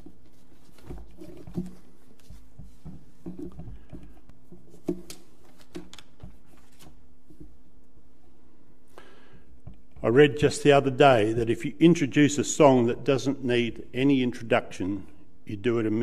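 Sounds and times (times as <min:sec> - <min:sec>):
paper rustling: 0:00.0 - 0:03.9, 0:04.7 - 0:07.5.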